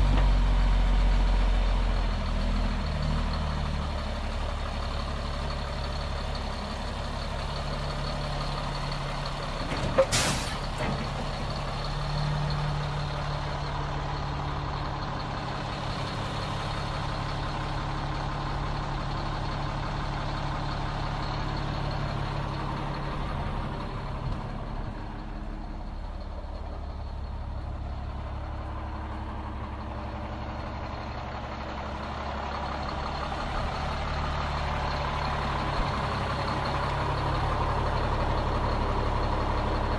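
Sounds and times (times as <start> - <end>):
diesel truck engine idling: 0.0 - 39.9
air release hiss: 10.1 - 10.6.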